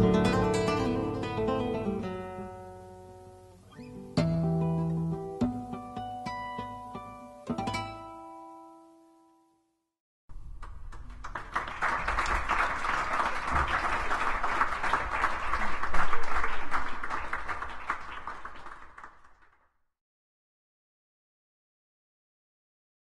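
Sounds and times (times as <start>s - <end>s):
audience applauding: 10.6s - 19.6s.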